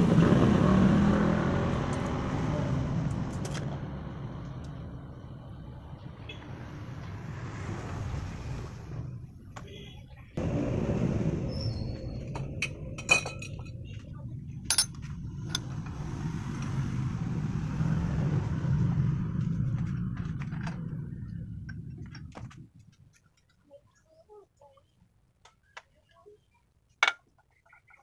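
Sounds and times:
steady low rumble: 0:01.6 - 0:09.6, 0:10.2 - 0:23.1
metal clinks and taps: 0:14.7 - 0:15.0.

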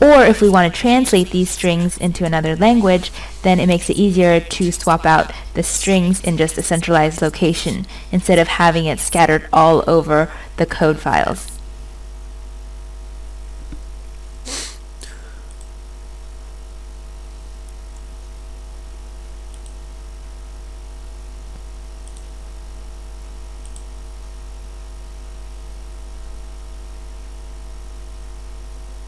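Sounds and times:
electrical hum: 0:00.0 - 0:29.0
computer mouse clicks: 0:19.5 - 0:19.8, 0:23.6 - 0:23.9.

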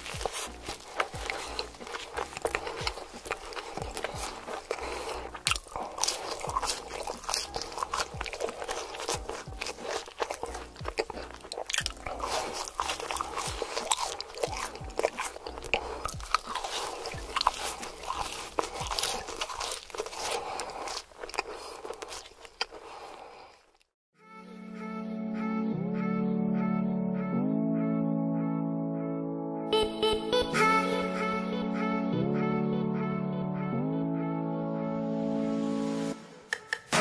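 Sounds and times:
crunchy chewing of fried food: 0:00.0 - 0:24.0.

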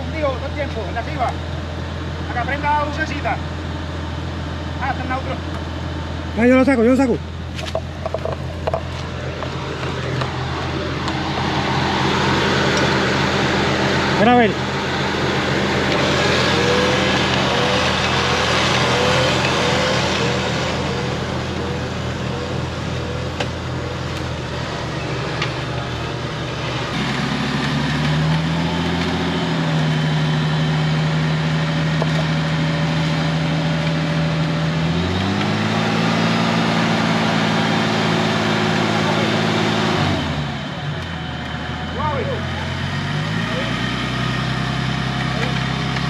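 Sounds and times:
car engine running: 0:00.0 - 0:46.0
electric winch pulling: 0:09.0 - 0:46.0.

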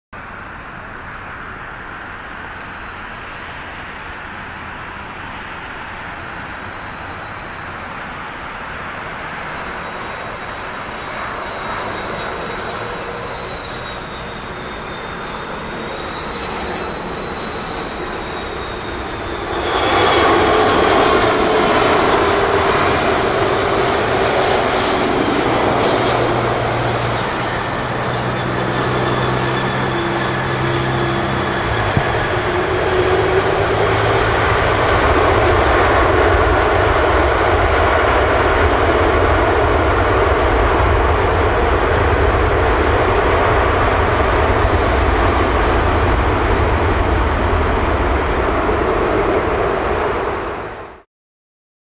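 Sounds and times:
jet engine reverse thrust roar: 0:00.2 - 0:51.1
jet engines whining and rumbling: 0:00.2 - 0:51.1.

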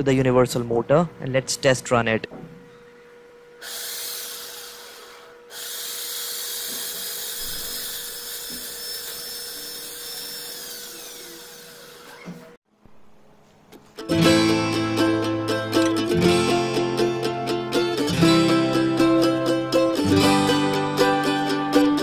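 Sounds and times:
electric motor whining: 0:03.6 - 0:12.6.

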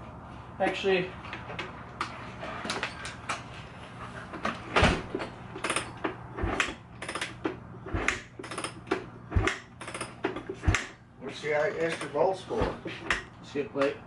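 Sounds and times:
kick lever clicks and rattles: 0:04.4 - 0:14.0.

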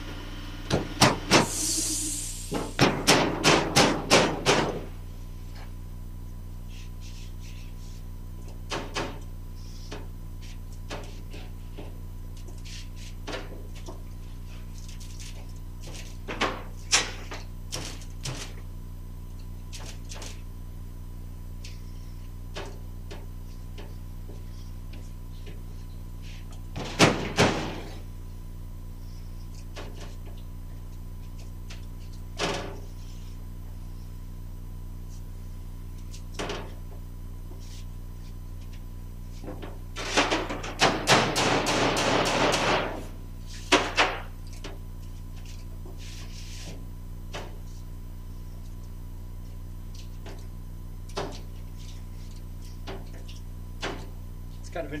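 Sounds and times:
electrical hum: 0:00.0 - 0:55.0
knocks on sheet metal: 0:40.8 - 0:43.0.

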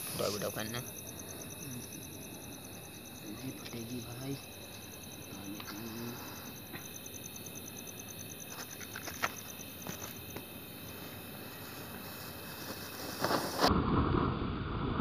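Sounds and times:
crickets chirping: 0:00.0 - 0:14.8
firework crackling and popping: 0:11.0 - 0:15.0.

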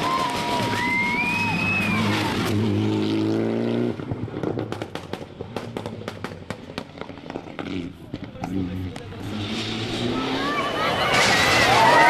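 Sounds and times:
rally car engine revving: 0:00.1 - 0:12.0
exhaust backfires crackling: 0:03.9 - 0:12.0.

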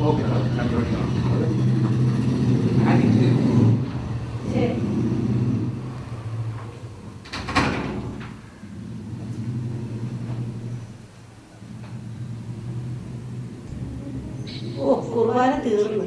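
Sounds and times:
vehicle engine running: 0:00.0 - 0:07.3, 0:08.1 - 0:15.8
door shutting: 0:05.8 - 0:11.0.

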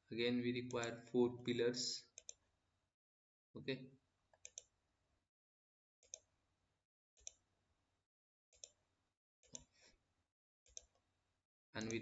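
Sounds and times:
faint computer mouse clicks: 0:02.2 - 0:02.4, 0:04.4 - 0:04.7.

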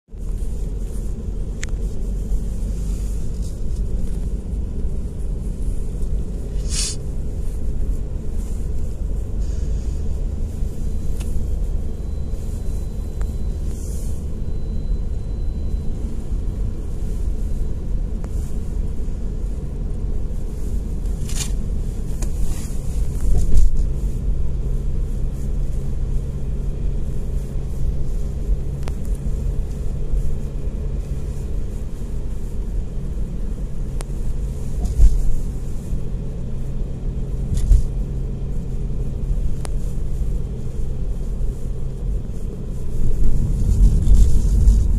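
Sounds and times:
car interior road rumble: 0:00.0 - 0:44.9
short hisses: 0:06.5 - 0:07.1, 0:09.4 - 0:10.1.

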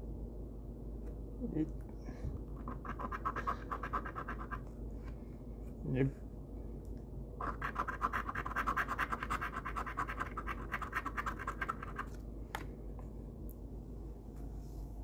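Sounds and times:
lottery ticket being scratched: 0:07.4 - 0:12.1.

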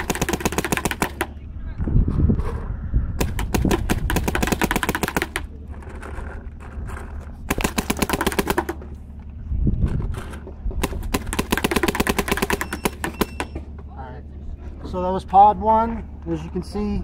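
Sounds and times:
paintball marker firing: 0:00.0 - 0:01.4, 0:03.2 - 0:05.5, 0:07.5 - 0:08.9, 0:10.8 - 0:13.5.

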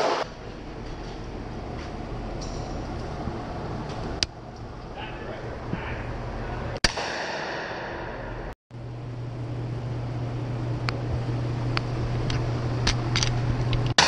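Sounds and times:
steady low hum: 0:00.0 - 0:14.0
gunshot ringing indoors: 0:06.8 - 0:08.5.

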